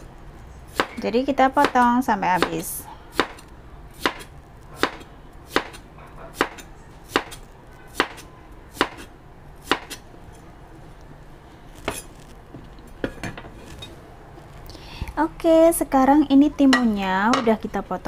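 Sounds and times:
knife chopping on cutting board: 0.7s - 1.0s, 1.6s - 3.4s, 4.0s - 10.0s.

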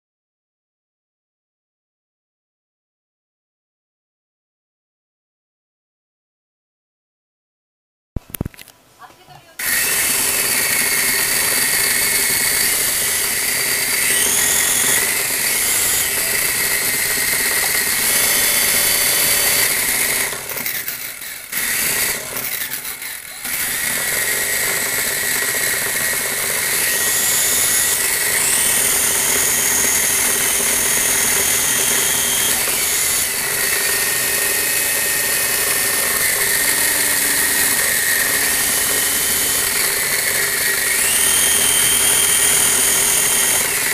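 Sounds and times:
toy motors and gears whirring: 9.6s - 43.9s.

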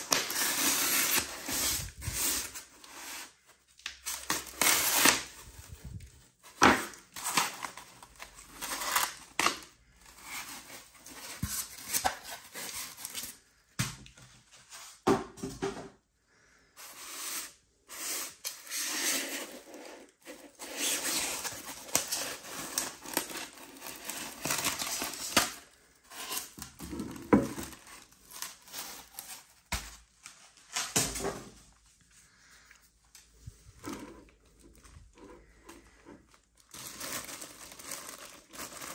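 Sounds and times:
plastic bag crinkling: 31.7s - 38.9s.

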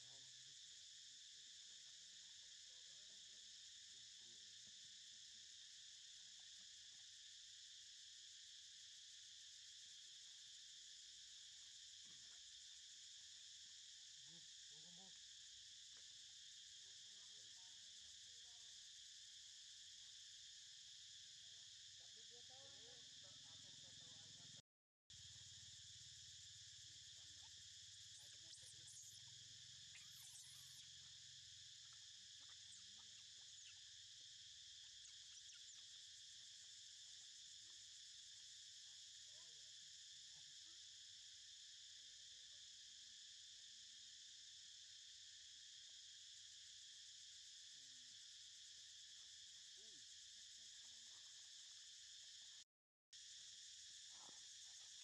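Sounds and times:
insects droning: 0.0s - 52.6s, 53.2s - 55.0s
faint high chirps: 27.2s - 31.2s.

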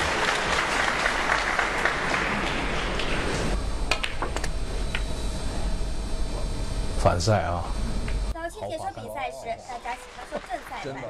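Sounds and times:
audience applauding: 0.0s - 4.2s, 9.8s - 11.0s.

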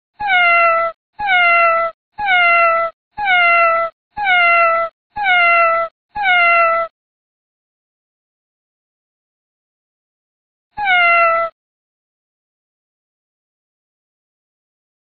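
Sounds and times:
cat meowing: 0.2s - 6.9s, 10.8s - 11.6s.

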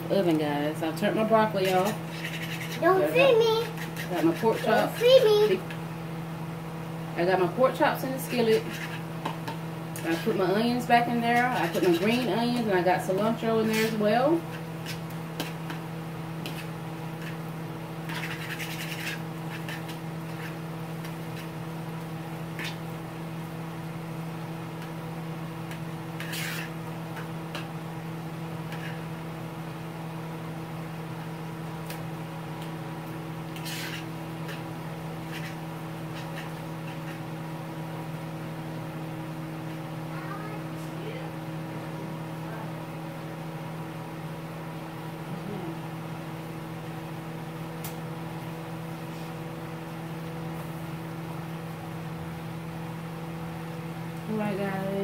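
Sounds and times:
low electrical hum: 0.0s - 55.0s
food crackling in a skillet: 8.2s - 38.7s.

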